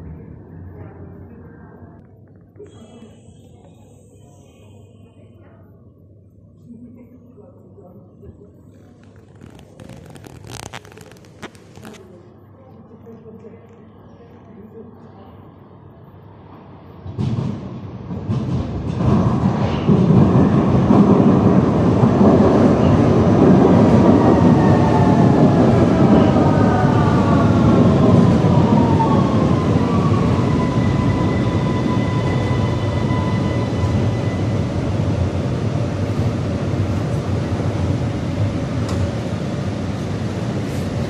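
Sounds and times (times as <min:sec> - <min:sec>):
metro train wheels rumbling: 0:16.3 - 0:41.0.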